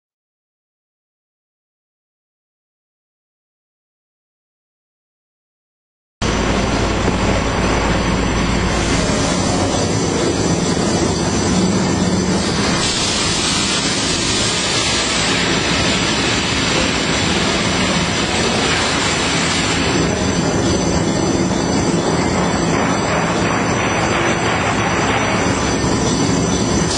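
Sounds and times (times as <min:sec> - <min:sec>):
loud mechanical din: 0:06.2 - 0:26.9
thin high whine: 0:06.2 - 0:26.9.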